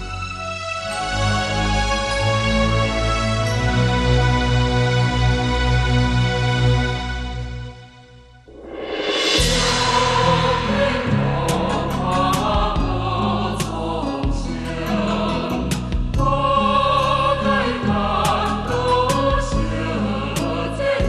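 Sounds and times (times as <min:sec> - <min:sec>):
bass line: 0:02.4 - 0:21.0
choir singing long held notes: 0:08.5 - 0:21.0.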